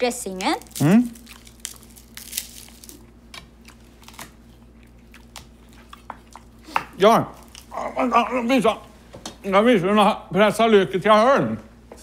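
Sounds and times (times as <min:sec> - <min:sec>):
garlic skin crackling: 0:00.3 - 0:06.8.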